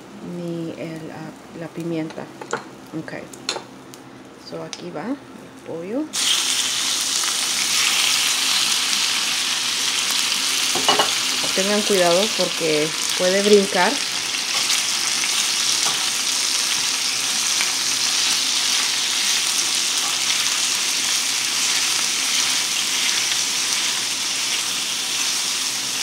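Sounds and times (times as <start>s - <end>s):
chicken sizzling in hot oil: 6.1s - 26.0s.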